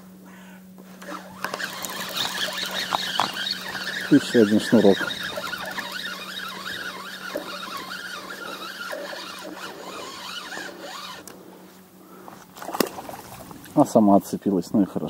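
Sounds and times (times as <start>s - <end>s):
fishing reel whirring: 0.8s - 11.5s.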